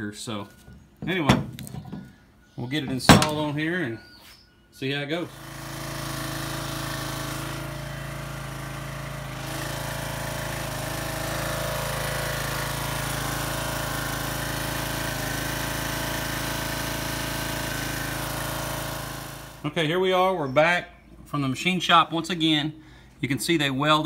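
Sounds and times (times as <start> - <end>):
pressure washer engine running: 5.1 - 19.8
water spraying from a leak: 5.4 - 19.5.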